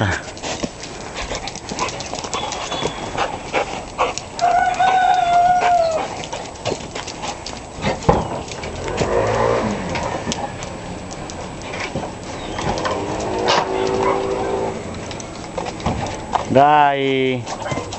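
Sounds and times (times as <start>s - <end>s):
rooster crowing: 4.4s - 6.1s.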